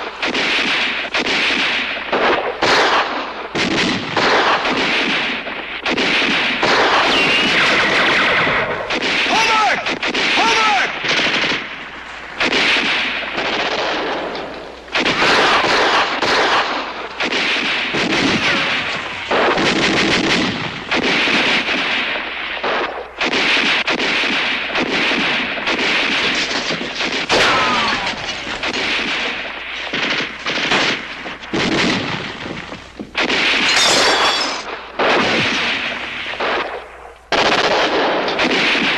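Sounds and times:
rifle shots: 0:00.0 - 0:38.9
machine-gun bursts: 0:12.4 - 0:38.9.

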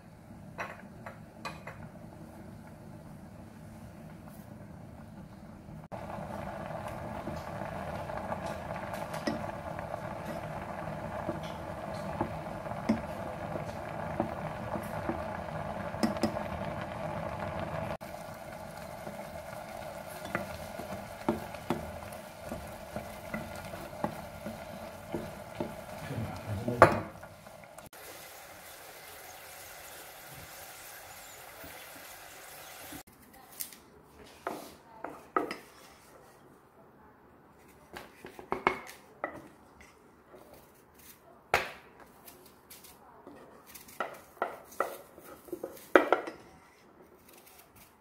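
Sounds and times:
beans bubbling in a pot: 0:00.0 - 0:33.1
wooden spoon knocking on pot: 0:10.2 - 0:15.4, 0:16.0 - 0:16.5, 0:18.9 - 0:27.3.

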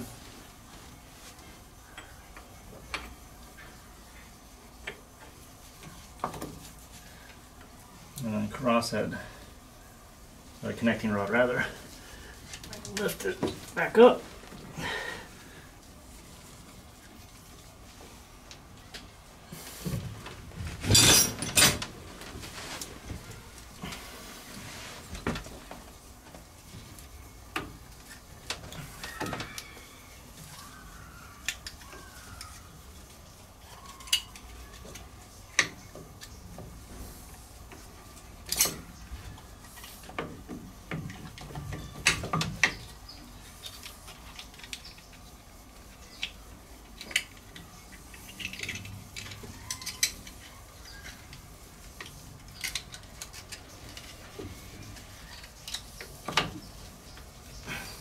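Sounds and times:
metal parts clinking and knocking: 0:20.8 - 0:21.8.

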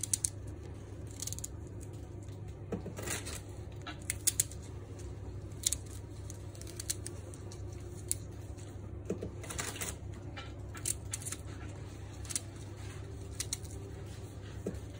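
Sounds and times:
crisp clicks and snaps of leaves: 0:00.0 - 0:02.5, 0:03.2 - 0:08.7
low steady hum: 0:00.0 - 0:14.9.

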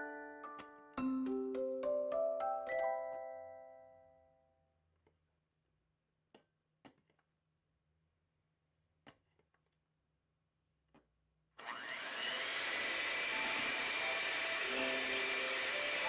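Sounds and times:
electric hand mixer whining: 0:11.6 - 0:16.0.

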